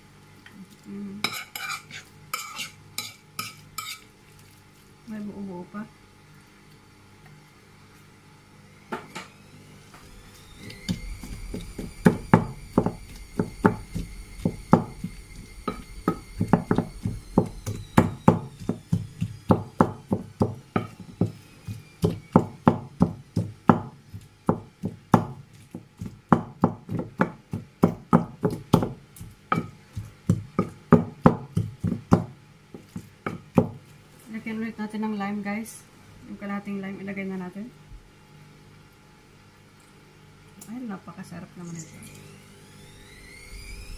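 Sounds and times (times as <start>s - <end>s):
pestle knocking in a bowl: 10.9s - 33.8s.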